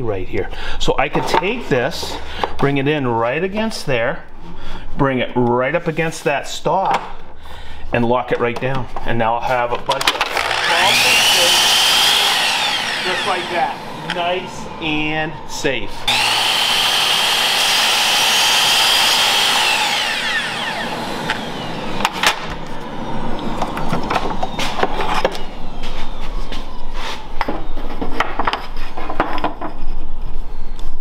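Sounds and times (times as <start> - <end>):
miter saw running and winding down: 10.2 - 25.9.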